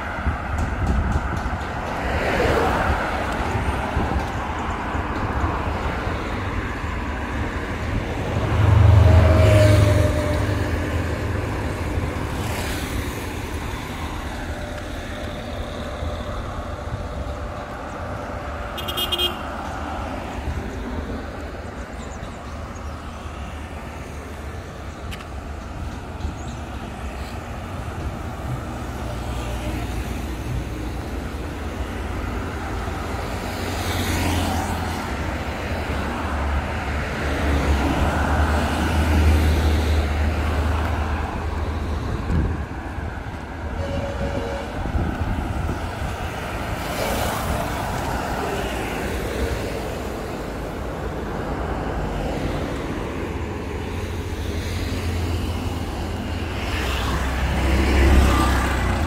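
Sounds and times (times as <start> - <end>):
road traffic passing: 0.0 - 59.0.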